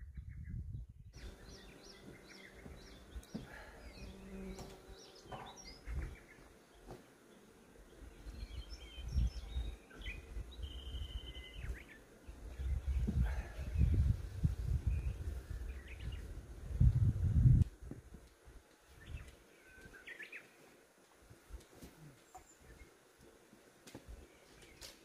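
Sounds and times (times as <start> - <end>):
birds chirping and whistling: 0.1 - 6.9, 7.9 - 14.1, 14.8 - 16.3.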